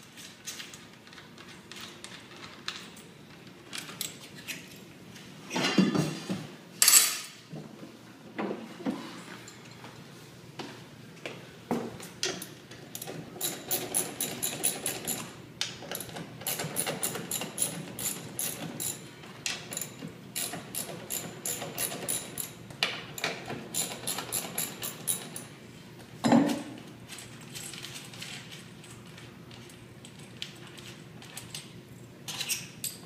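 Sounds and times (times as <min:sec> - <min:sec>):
ratchet wrench clicking: 0:23.8 - 0:25.4.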